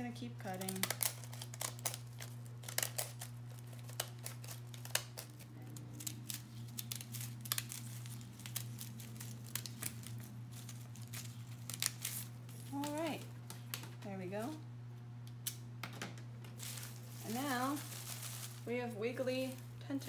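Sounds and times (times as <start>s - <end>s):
steady low hum: 0.0s - 20.0s
paper crinkling: 0.4s - 14.6s, 16.5s - 20.0s
scissors snipping paper: 0.5s - 13.2s.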